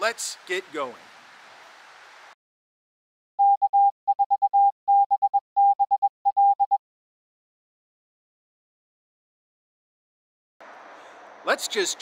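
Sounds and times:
morse code beeping: 3.4s - 6.8s.

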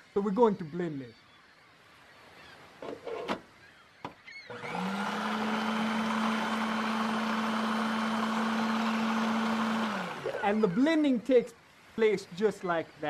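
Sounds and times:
blender motor whirring: 4.5s - 10.4s.

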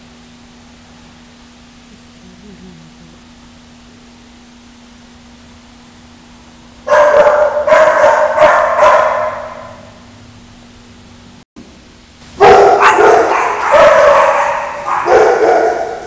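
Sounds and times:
dog barking: 6.9s - 10.0s, 12.4s - 16.0s.

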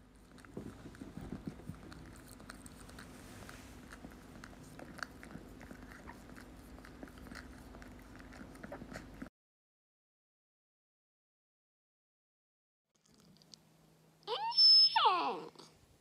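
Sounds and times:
faint steady hum: 0.0s - 9.3s, 13.0s - 16.0s
puppies licking and nibbling: 0.0s - 9.3s, 13.0s - 13.7s.

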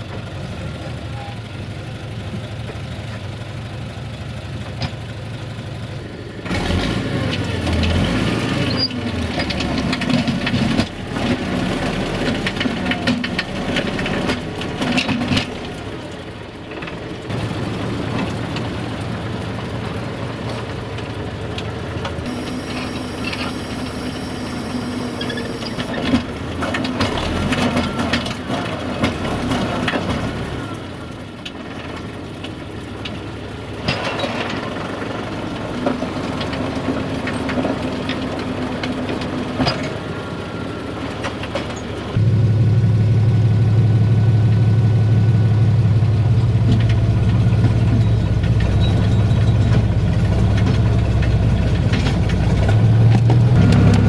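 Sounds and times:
tractor engine running: 0.0s - 54.0s
thin high whine: 22.3s - 26.0s.

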